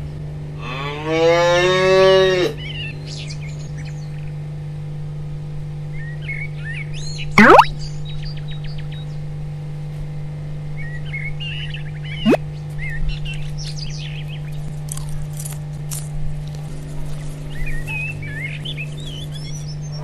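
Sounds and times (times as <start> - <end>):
small birds chirping: 11.6 - 14.8.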